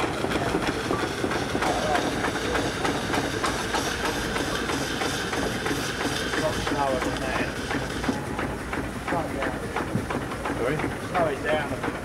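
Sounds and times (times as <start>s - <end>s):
steam hissing: 0.0s - 8.3s
machinery clanks and clicks: 0.0s - 12.0s.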